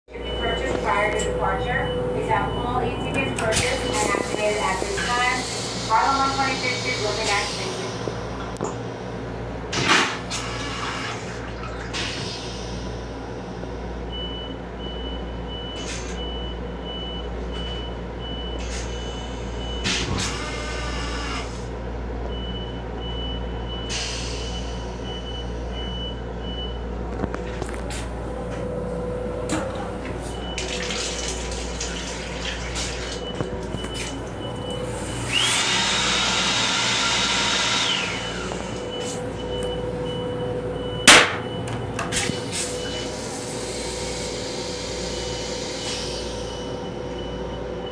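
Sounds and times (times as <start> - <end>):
railcar running rumble: 0.1 - 47.9.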